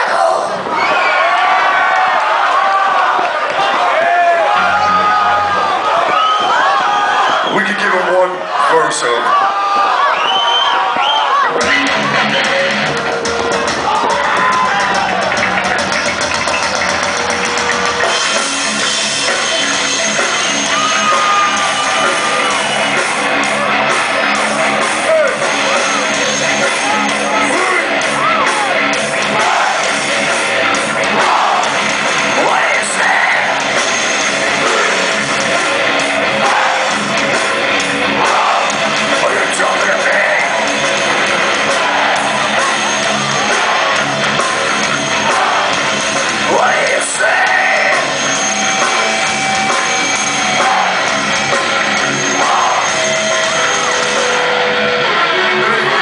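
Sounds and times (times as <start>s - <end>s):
heavy metal band playing live: 11.5s - 56.0s.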